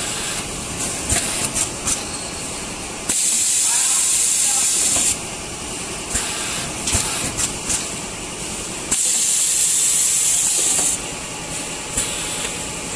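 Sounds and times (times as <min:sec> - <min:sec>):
packing machine running: 0:00.0 - 0:12.9
loud steady hiss: 0:03.1 - 0:05.2, 0:08.9 - 0:10.9.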